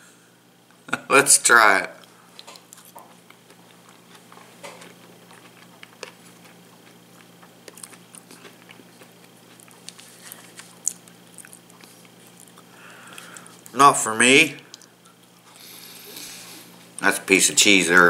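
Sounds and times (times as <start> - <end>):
man chewing food: 2.0 - 13.8, 14.6 - 17.0.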